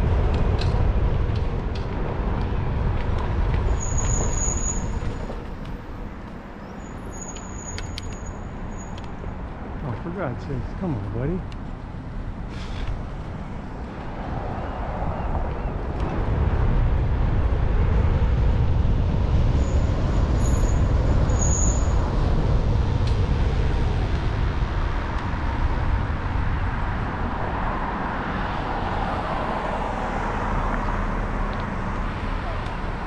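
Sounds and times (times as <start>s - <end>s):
tyre and road noise: 0.0s - 33.0s
short high squeaks: 3.8s - 5.2s, 6.6s - 9.1s
wind buffeting microphone: 11.7s - 33.0s.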